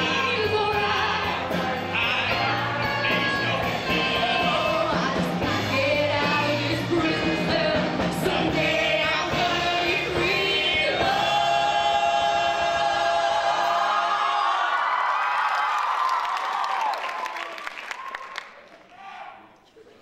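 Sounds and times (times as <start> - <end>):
rock band playing: 0.0 - 11.6
mixed choir singing: 0.0 - 14.7
solo voices singing: 0.0 - 14.7.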